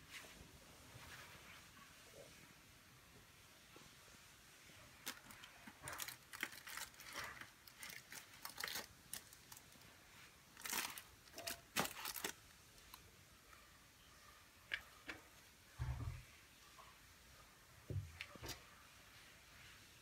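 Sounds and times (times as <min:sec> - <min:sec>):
plastic bag crinkling: 0:05.0 - 0:09.9, 0:10.5 - 0:13.0.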